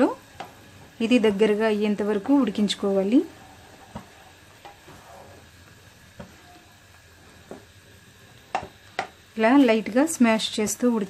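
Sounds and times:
milk boiling in a frying pan: 0.0s - 11.0s
spatula tapping a pan: 0.3s - 0.6s, 3.8s - 5.0s, 6.1s - 6.4s, 8.4s - 9.2s.

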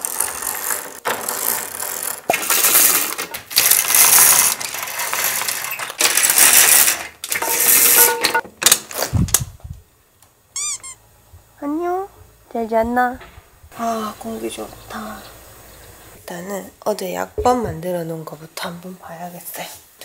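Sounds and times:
window blinds rattling: 0.0s - 9.2s
low thud: 17.4s - 17.8s.

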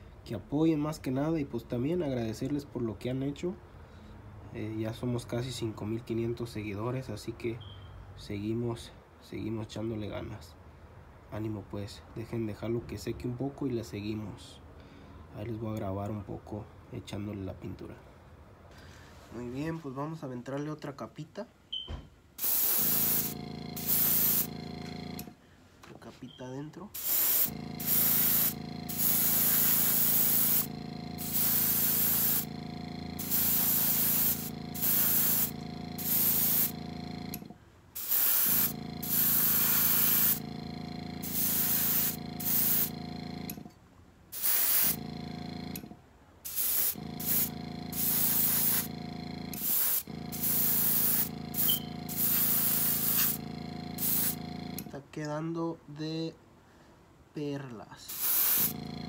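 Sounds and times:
airbrush spraying hiss: 22.4s - 25.0s, 27.0s - 32.6s, 33.2s - 36.8s, 38.0s - 40.4s, 41.2s - 43.0s, 44.4s - 45.0s, 46.5s - 48.9s, 49.6s - 53.4s, 54.0s - 54.4s, 58.1s - 58.8s
airbrush compressor hum: 22.4s - 25.4s, 27.0s - 43.7s, 44.4s - 54.9s, 58.1s - 59.0s.

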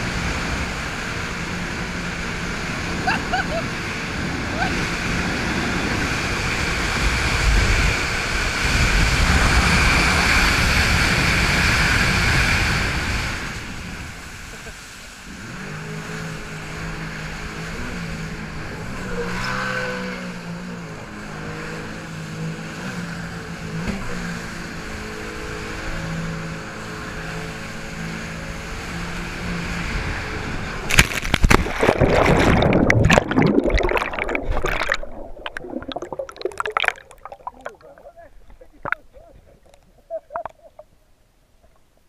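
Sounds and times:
jet ski engine running: 0.0s - 31.0s
wind: 0.0s - 42.0s
loud splash into water: 30.9s - 37.8s
muffled underwater bubbling: 31.5s - 40.9s.

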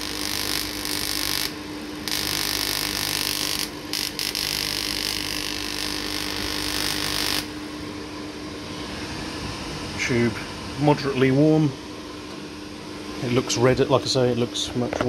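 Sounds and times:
tesla coil spark hissing: 0.0s - 7.8s
steady hum: 0.0s - 15.0s.

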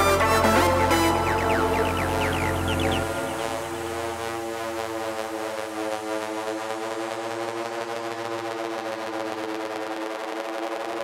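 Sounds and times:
house music bass and beat: 0.0s - 3.8s
sustained synthesizer pad chords: 0.0s - 11.0s.

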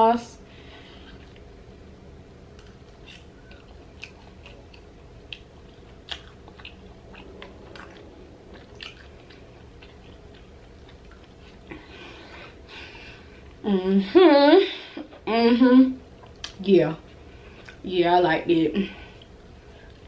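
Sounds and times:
person chewing food: 0.9s - 1.6s, 2.5s - 13.6s, 16.2s - 17.8s.

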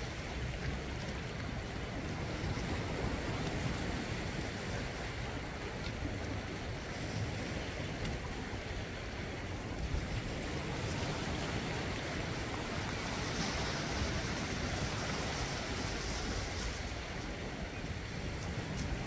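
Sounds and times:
sea surf washing over rocks: 0.0s - 19.0s
wave breaking: 9.4s - 19.0s.

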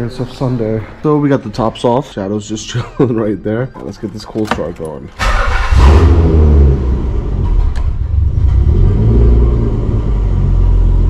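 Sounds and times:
car engine starting and idling: 3.9s - 11.0s.

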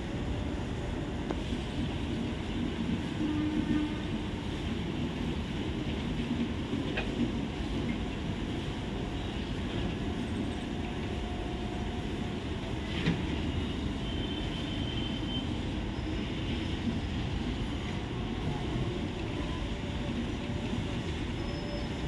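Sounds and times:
train wheels rumbling on rails: 0.0s - 22.0s
faint high squeal: 13.5s - 16.7s, 21.3s - 22.0s.

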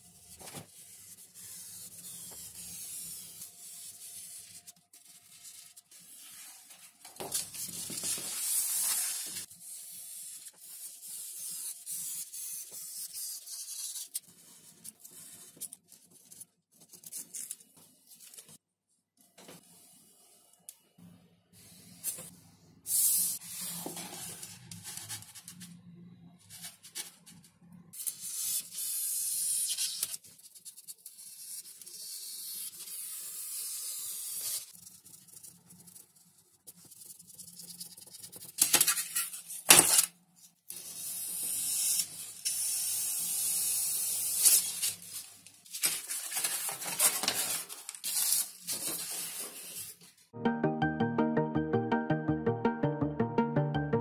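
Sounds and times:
paper rustling over foam board: 44.4s - 50.2s.

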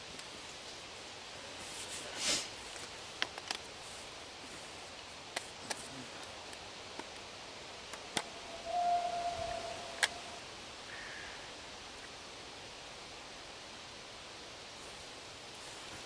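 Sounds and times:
twigs rustling: 7.9s - 11.1s
brief steady tone: 8.3s - 10.4s.

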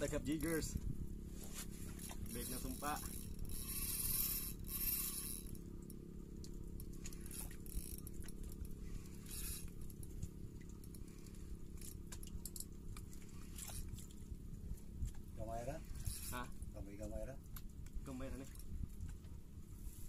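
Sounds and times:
low rumble: 0.0s - 20.0s
fishing reel clicking and scraping: 0.3s - 0.8s, 1.8s - 6.0s, 6.7s - 10.1s, 10.8s - 12.7s, 15.6s - 16.6s.

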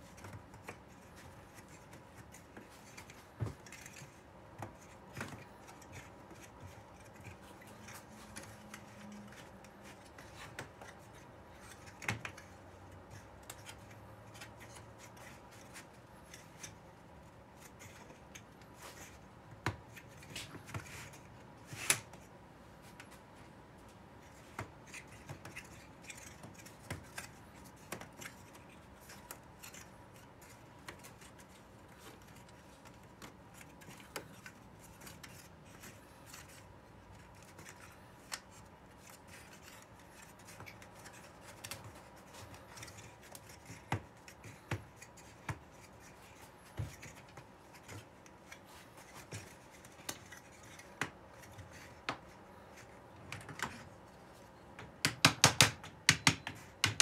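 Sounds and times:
wooden strips clicking and scraping: 24.0s - 54.1s.

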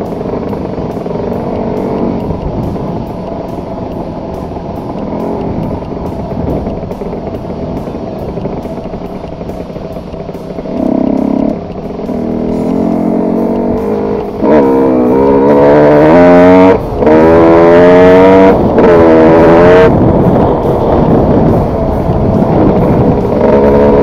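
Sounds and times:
two-stroke engine revving: 0.0s - 24.0s.

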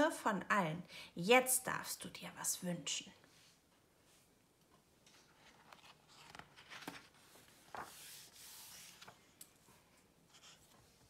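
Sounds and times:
paper page turning: 5.0s - 9.4s.

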